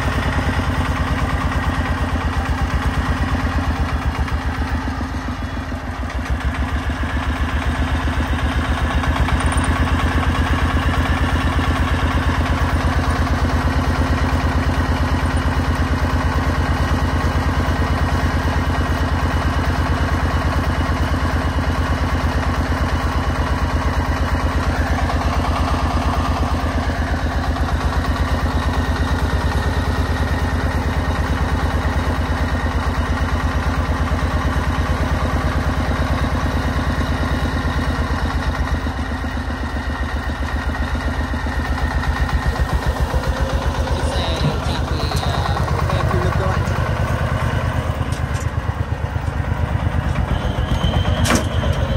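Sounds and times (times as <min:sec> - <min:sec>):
diesel engine chugging: 0:00.0 - 0:51.9.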